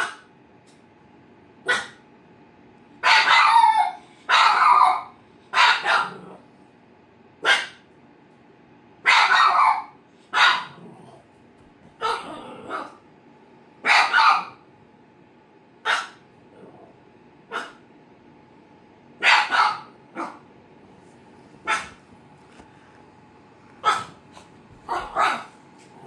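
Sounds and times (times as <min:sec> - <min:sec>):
dog barking: 0:00.0 - 0:00.3, 0:01.6 - 0:02.1, 0:03.0 - 0:06.4, 0:07.4 - 0:07.8, 0:09.0 - 0:10.9, 0:12.0 - 0:13.0, 0:13.8 - 0:14.6, 0:15.8 - 0:16.2, 0:17.5 - 0:17.8, 0:19.2 - 0:20.5, 0:21.6 - 0:22.0, 0:23.8 - 0:24.2, 0:24.8 - 0:25.6.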